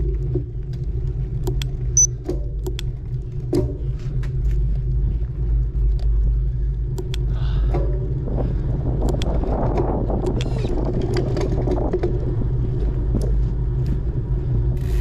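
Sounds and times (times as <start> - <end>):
bicycle clicks and rattles: 0.0 - 15.0
wind buffeting microphone: 6.4 - 15.0.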